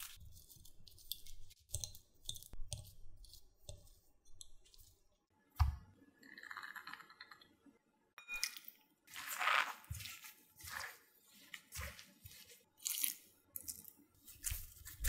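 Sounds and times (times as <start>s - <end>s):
scraping or squishing: 0.0s - 5.0s, 9.1s - 15.0s.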